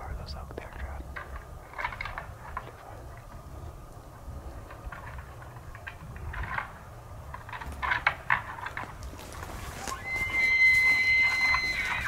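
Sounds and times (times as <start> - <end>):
faint ticks and rustles: 0.0 - 12.0
low wind rumble: 0.0 - 12.0.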